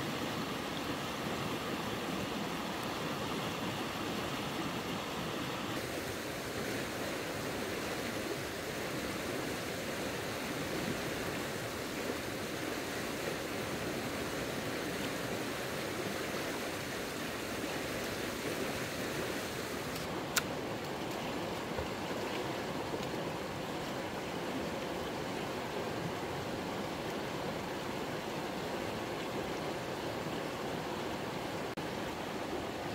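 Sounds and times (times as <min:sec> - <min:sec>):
fast-flowing stream: 0:00.0 - 0:32.9
sharp click: 0:19.9 - 0:20.5.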